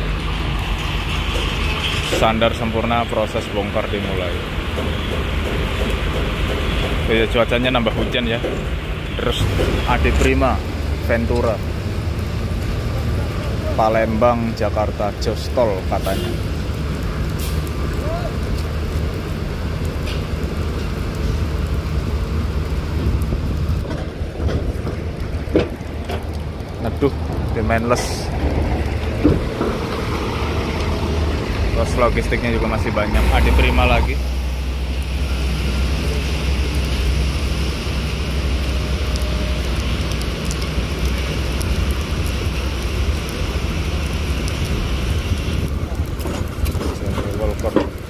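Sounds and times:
heavy rain falling: 0.0s - 48.0s
bus diesel engine humming: 28.8s - 39.8s.

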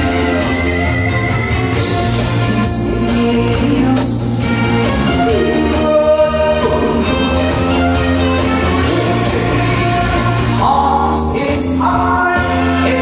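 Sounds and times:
instrumental accompaniment: 0.0s - 13.0s
man singing into a microphone: 2.1s - 7.7s, 8.8s - 9.9s, 10.5s - 13.0s.

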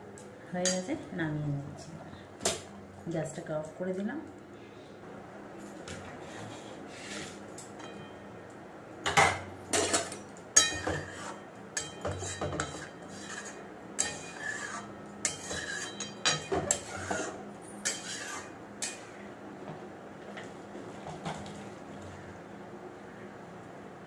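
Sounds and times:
metal ladle scraping pan: 9.8s - 19.2s.

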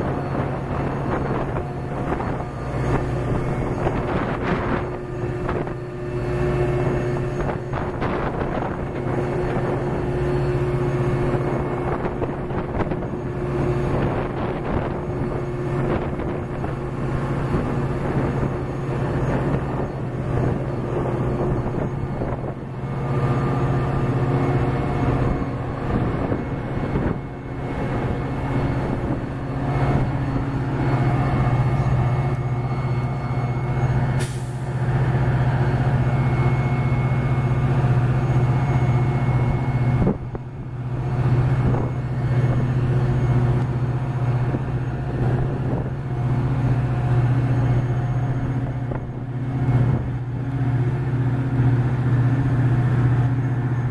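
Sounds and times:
diesel locomotive engine humming: 0.0s - 53.9s.

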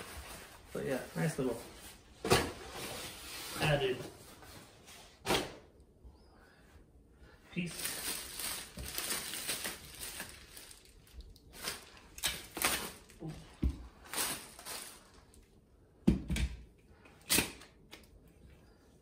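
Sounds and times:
plastic wrapping rustling: 7.6s - 15.5s.

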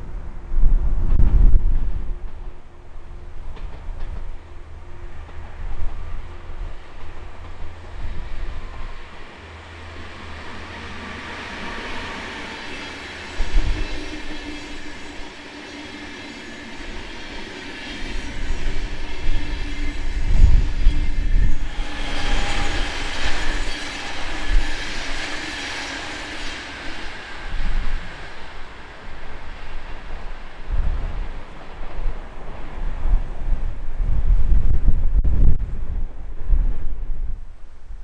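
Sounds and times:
train rail rumble: 0.0s - 37.6s
thin wheel squealing: 18.0s - 27.1s.

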